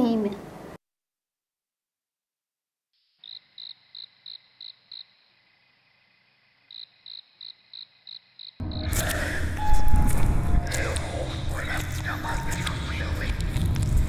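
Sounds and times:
cricket chirping: 0:03.0 - 0:09.6.

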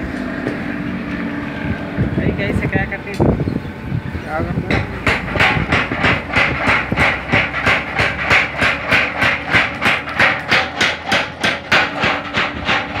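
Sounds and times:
power hammer striking hot steel: 0:04.7 - 0:13.0.

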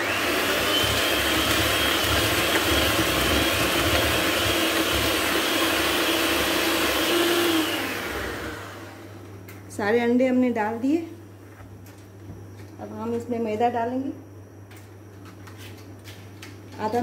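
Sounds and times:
electric hand mixer whining: 0:00.0 - 0:09.2.

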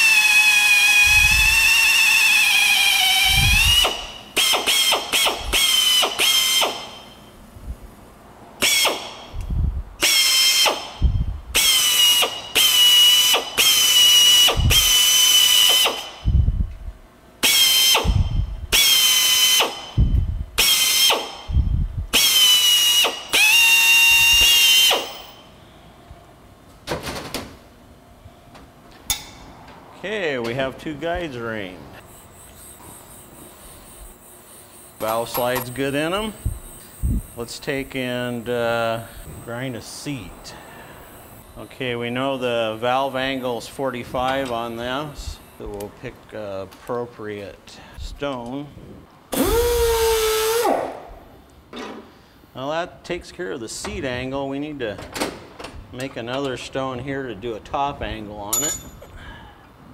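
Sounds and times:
air drill high whine: 0:00.0 - 0:07.2, 0:08.6 - 0:16.6, 0:17.4 - 0:25.6, 0:32.1 - 0:43.9, 0:49.3 - 0:50.9.

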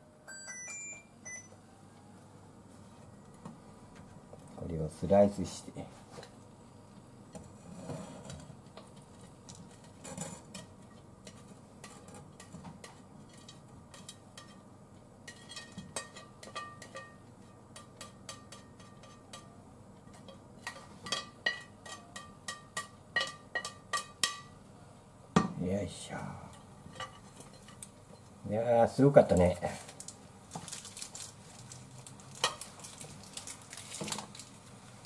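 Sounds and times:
spatula clinking on plate and pan: 0:10.4 - 0:14.6, 0:15.2 - 0:24.6.

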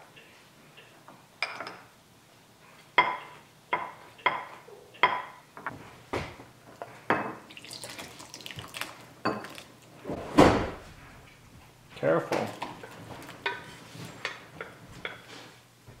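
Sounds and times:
soup splashing into a bowl: 0:07.4 - 0:09.8.

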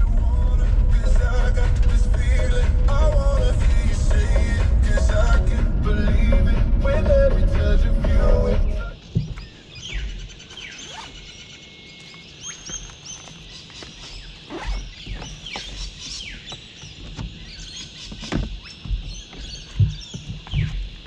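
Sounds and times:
birds chirping and whistling: 0:08.2 - 0:21.0.

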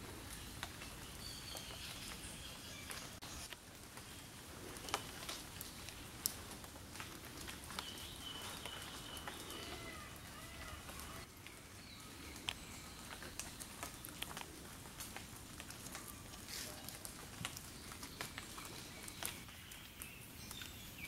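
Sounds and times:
faint forest birdsong: 0:00.0 - 0:21.0
light ticks and patters: 0:00.0 - 0:21.0.

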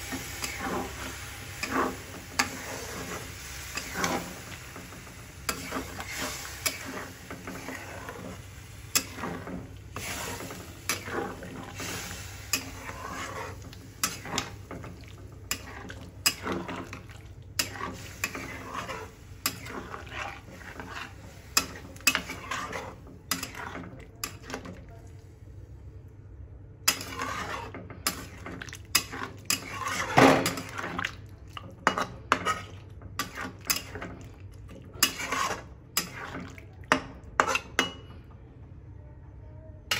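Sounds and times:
metal spatula scraping metal pan: 0:05.5 - 0:17.0, 0:17.6 - 0:24.5, 0:26.9 - 0:28.4, 0:29.0 - 0:30.7, 0:35.0 - 0:36.4.

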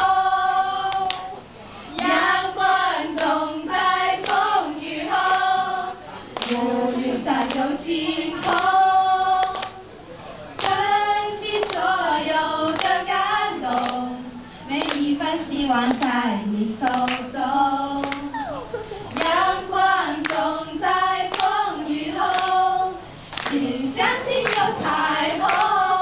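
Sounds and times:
girls singing together: 0:00.0 - 0:09.9, 0:10.6 - 0:26.0.

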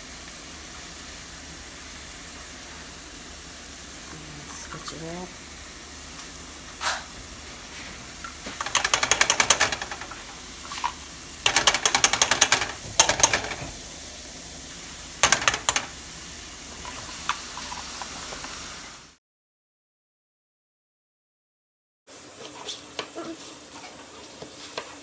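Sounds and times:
garlic crusher clicking: 0:08.6 - 0:10.4, 0:11.4 - 0:13.7, 0:15.2 - 0:16.0.

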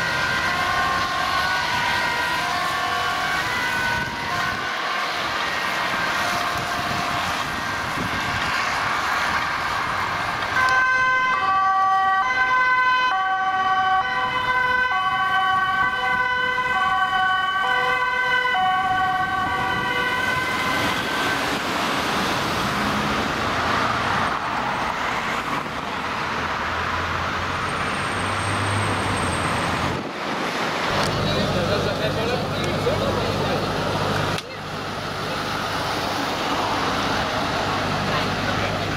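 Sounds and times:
two-tone ambulance siren: 0:00.0 - 0:23.4
passing road traffic: 0:00.0 - 0:38.9.

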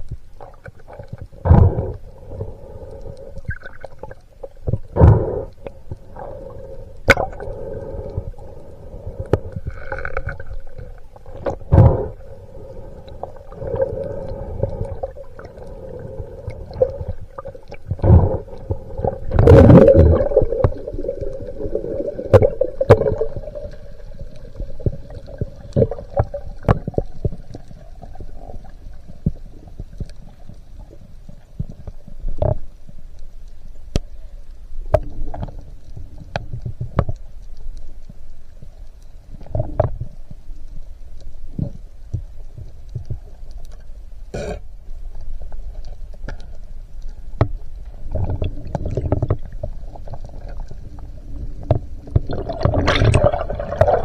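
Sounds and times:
steady underwater hum: 0:00.0 - 0:54.0
sharp underwater clicks and knocks: 0:24.8 - 0:27.6, 0:34.9 - 0:38.2, 0:39.4 - 0:40.3, 0:41.5 - 0:50.9, 0:51.5 - 0:54.0.

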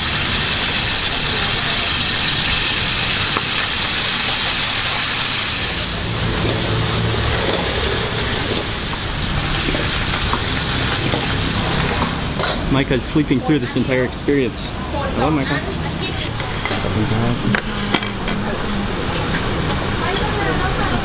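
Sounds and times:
cabbage sizzling in a wok: 0:00.0 - 0:12.4
gas burner rumble: 0:00.0 - 0:21.0.

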